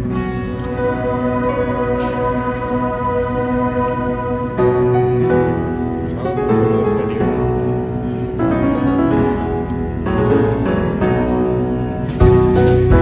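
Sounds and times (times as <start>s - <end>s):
instrumental background music: 0.0s - 13.0s.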